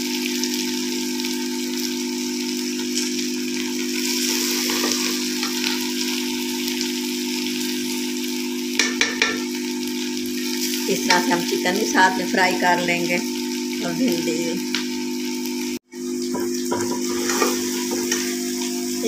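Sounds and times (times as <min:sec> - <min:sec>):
food sizzling in a pot: 0:00.0 - 0:19.0
ladle scraping and clinking pot: 0:04.5 - 0:06.0, 0:16.4 - 0:18.8.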